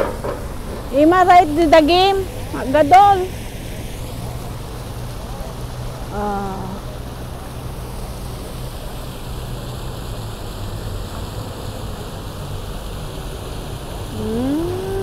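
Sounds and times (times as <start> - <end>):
fountain water rushing: 0.0 - 15.0
street traffic hum: 0.0 - 15.0.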